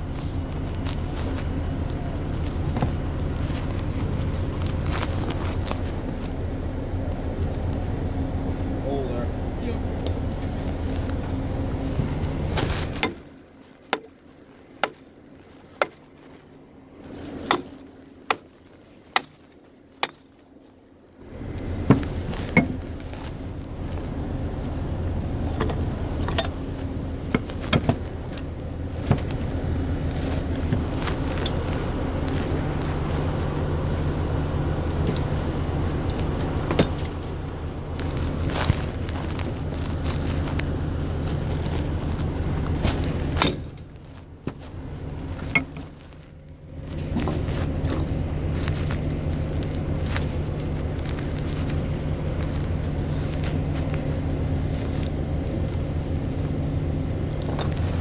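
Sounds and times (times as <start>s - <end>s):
drilling rig engine humming: 0.0s - 58.0s
footsteps on snow: 0.0s - 58.0s
knocks and clanks: 27.2s - 29.4s.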